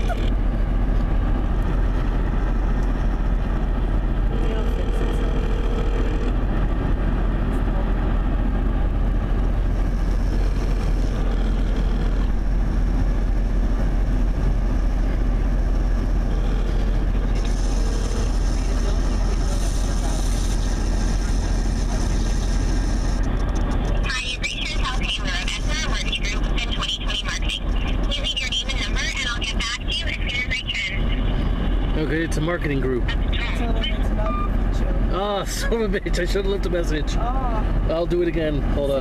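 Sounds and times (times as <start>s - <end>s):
car road and wind noise: 0.0s - 39.0s
telephone ringback tone: 4.3s - 6.4s.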